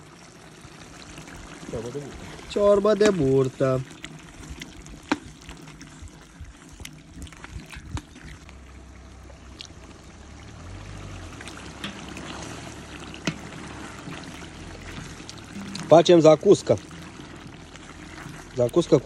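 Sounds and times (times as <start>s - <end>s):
stew bubbling and sizzling: 0.0s - 19.0s
wood fire crackling: 0.0s - 19.0s
low hum: 14.5s - 18.5s.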